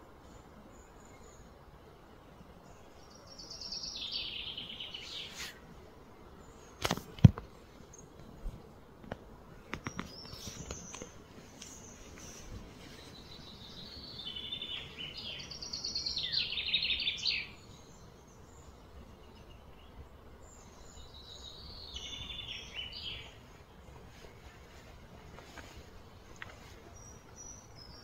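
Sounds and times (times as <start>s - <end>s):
songbird trilling: 13.3s - 17.7s.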